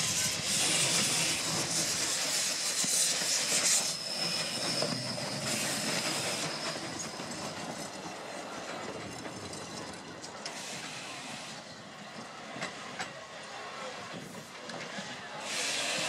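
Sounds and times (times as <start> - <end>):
steam hissing: 0.0 - 8.4, 10.5 - 11.8, 14.1 - 16.0
steam train rolling: 0.0 - 16.0.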